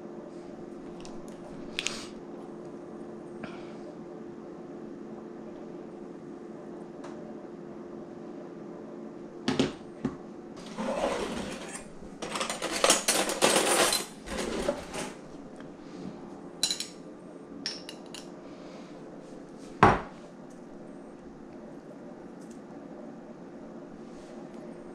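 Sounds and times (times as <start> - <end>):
faint steady hum: 0.0 - 24.9
cutlery drawer opening: 10.6 - 15.2
metal utensils rattling: 10.6 - 15.2.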